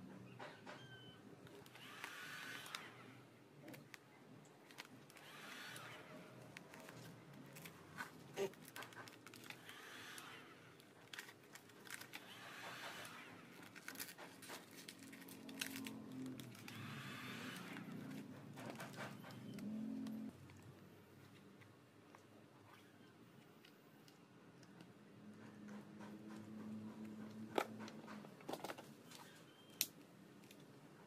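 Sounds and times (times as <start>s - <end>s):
vinyl film rustling and crinkling: 6.4s - 9.7s, 13.0s - 19.6s.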